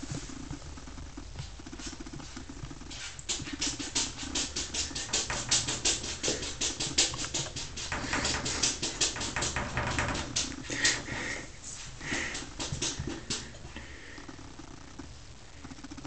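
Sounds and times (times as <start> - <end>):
kitten paws tapping on glass: 3.2 - 11.5, 12.1 - 13.7.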